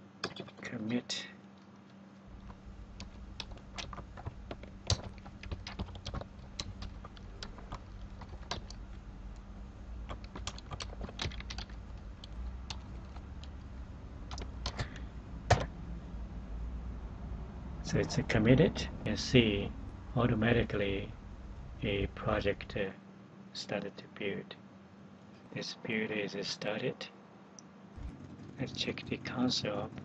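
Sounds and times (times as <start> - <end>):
faint steady hum: 0.0 - 30.0
computer keyboard typing: 0.2 - 0.6, 2.3 - 15.7.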